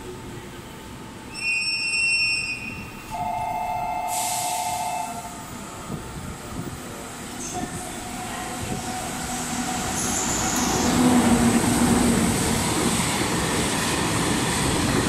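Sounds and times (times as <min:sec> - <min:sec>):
locomotive high whistle: 0:01.3 - 0:05.3
two-note locomotive horn: 0:01.4 - 0:05.3
freight train rumble: 0:02.6 - 0:15.0.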